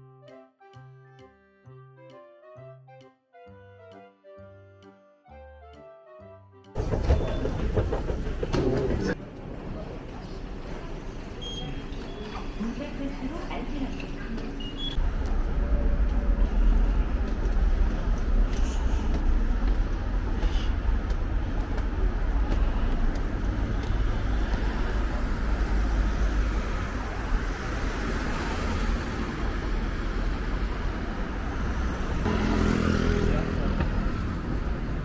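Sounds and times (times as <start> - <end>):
road traffic rumble: 6.7 - 35.0.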